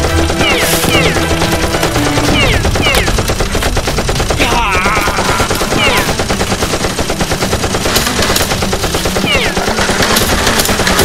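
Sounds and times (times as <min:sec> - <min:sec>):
machine-gun fire: 0:00.0 - 0:11.0.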